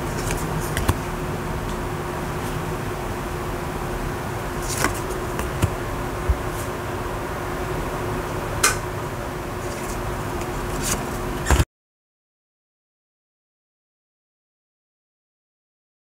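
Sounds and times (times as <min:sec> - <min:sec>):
background hiss and hum: 0:00.0 - 0:11.6
cards clicking and tapping: 0:00.2 - 0:01.0, 0:04.6 - 0:06.5.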